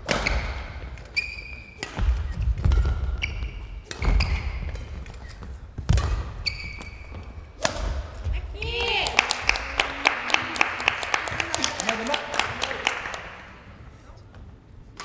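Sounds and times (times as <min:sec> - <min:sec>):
rackets striking shuttlecock: 0:00.0 - 0:09.8
shoes squeaking on floor: 0:00.1 - 0:07.6.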